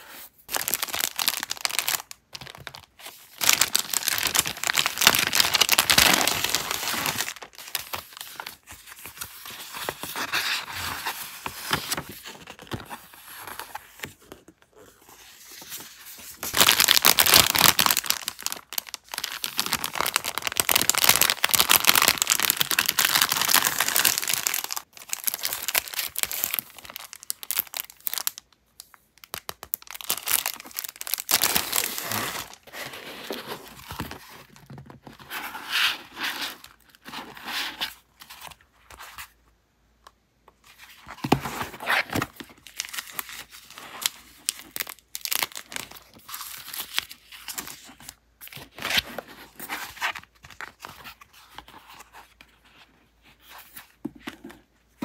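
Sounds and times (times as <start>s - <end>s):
packaging crinkling: 0.5s - 10.4s, 16.4s - 35.2s, 44.4s - 47.8s.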